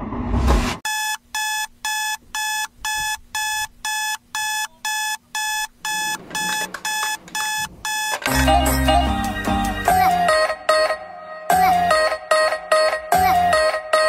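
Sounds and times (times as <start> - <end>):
electronic alarm beeping: 0.9 - 8.5.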